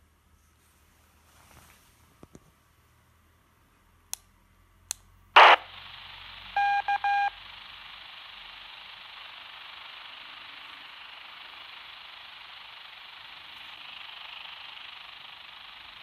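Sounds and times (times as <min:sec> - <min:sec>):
radio static hiss: 0:05.4 - 0:16.0
short beeps: 0:06.6 - 0:07.4.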